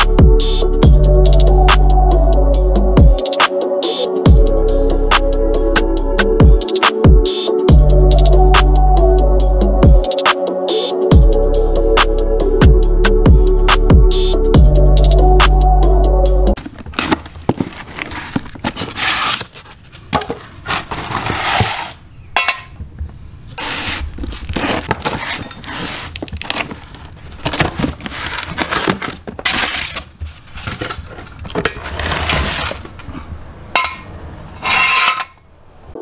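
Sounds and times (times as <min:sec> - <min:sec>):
cardboard boxes tearing and rustling: 0:16.6 - 0:22.0, 0:23.6 - 0:33.1
scraping: 0:16.6 - 0:22.8, 0:23.5 - 0:35.5
steel jack stands clanking: 0:33.8 - 0:35.4.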